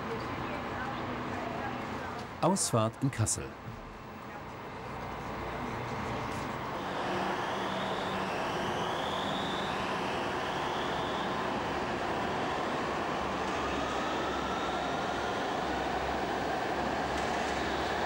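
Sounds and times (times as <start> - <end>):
tram running noise: 0.0 - 18.0
rising motor whine: 6.6 - 18.0.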